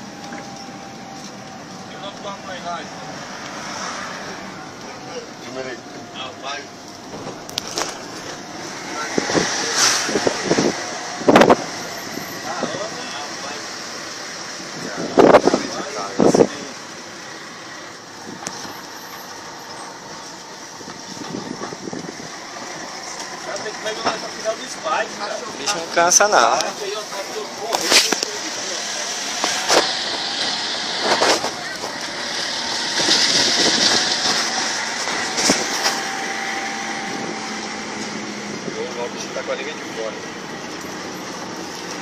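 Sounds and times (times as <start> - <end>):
road and engine noise: 0.0 - 42.0.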